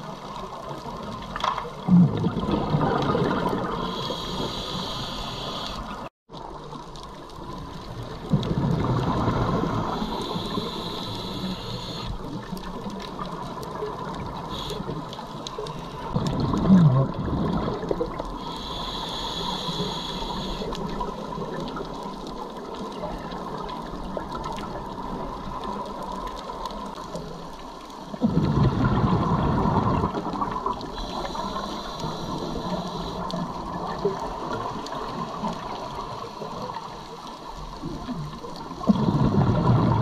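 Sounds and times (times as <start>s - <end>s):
exhaled bubbles underwater: 0.0s - 40.0s
regulator hiss on inhale: 3.6s - 6.1s, 9.4s - 12.3s, 14.4s - 16.2s, 18.3s - 20.9s, 30.8s - 33.6s.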